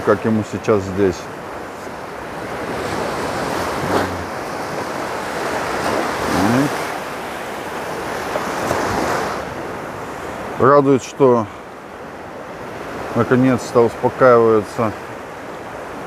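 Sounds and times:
waves breaking in shallows: 0.0s - 16.0s.

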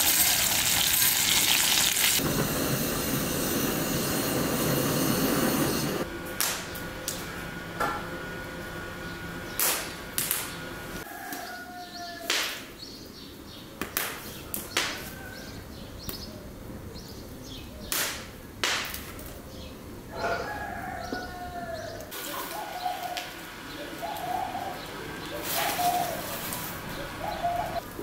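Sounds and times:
dove cooing: 20.2s - 27.8s
charcoal rattling from sack: 25.4s - 28.0s.

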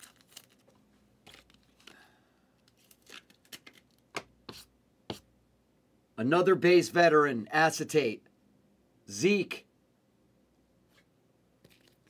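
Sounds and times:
cards rustling: 0.0s - 2.0s, 2.6s - 4.0s.

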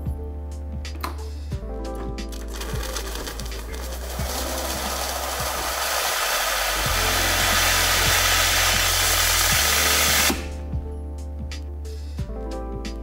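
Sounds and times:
steam wand hissing: 3.9s - 10.6s.

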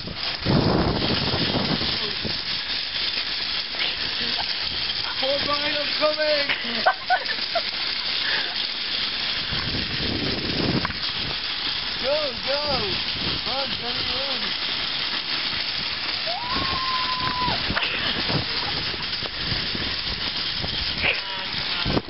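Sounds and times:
cart wheels hissing on wet pavement: 0.0s - 22.0s
low rumbles: 0.0s - 22.0s
people laughing: 6.5s - 8.6s, 17.7s - 19.2s.

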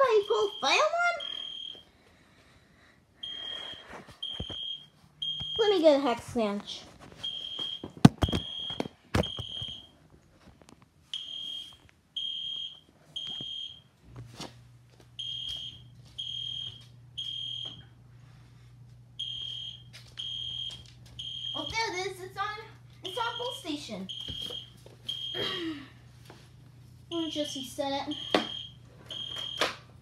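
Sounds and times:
fire alarm beeping: 0.0s - 1.9s, 3.2s - 5.9s, 7.2s - 10.0s, 11.1s - 14.0s, 15.2s - 18.0s, 19.2s - 21.9s, 23.0s - 25.6s, 27.1s - 29.9s.

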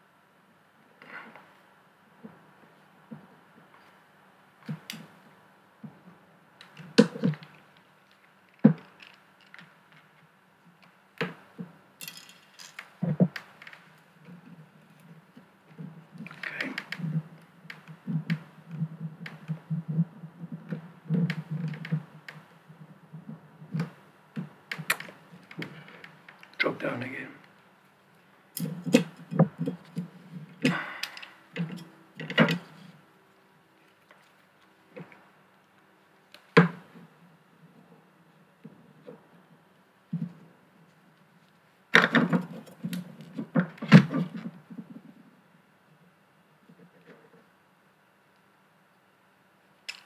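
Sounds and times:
prying and scraping: 11.2s - 22.4s, 28.6s - 33.0s.

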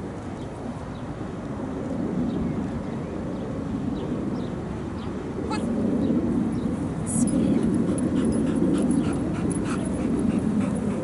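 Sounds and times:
low outdoor rumble: 5.2s - 11.0s.

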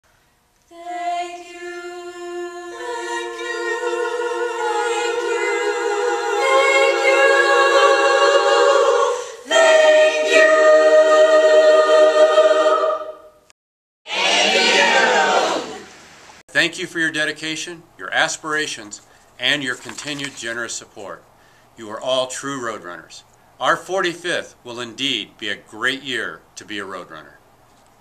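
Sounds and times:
a cappella choir singing: 0.7s - 13.4s, 14.1s - 16.0s.

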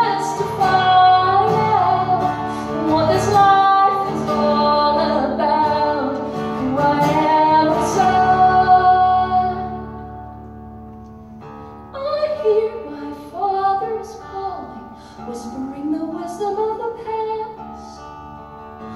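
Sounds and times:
woman singing: 0.0s - 10.4s, 12.0s - 18.1s
strummed acoustic guitar: 0.0s - 12.5s, 16.4s - 18.9s.

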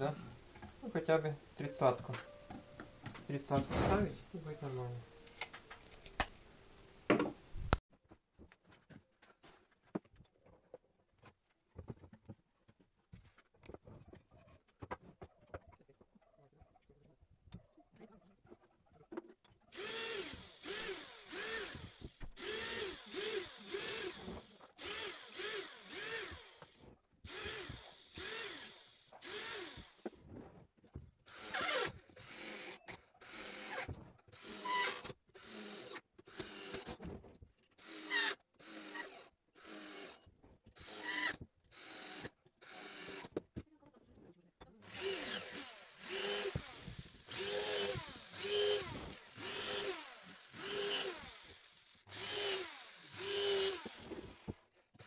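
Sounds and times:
cordless drill driving screws into wood: 19.7s - 30.2s, 31.3s - 43.5s, 44.8s - 55.0s.

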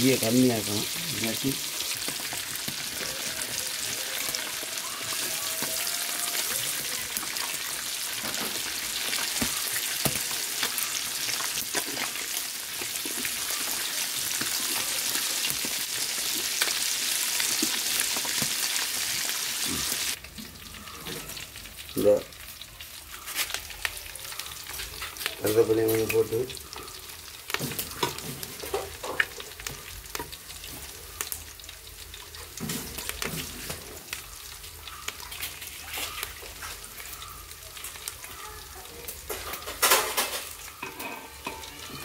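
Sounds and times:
fish sizzling in oil: 0.0s - 42.0s
spoon clinking on pan: 39.4s - 42.0s.

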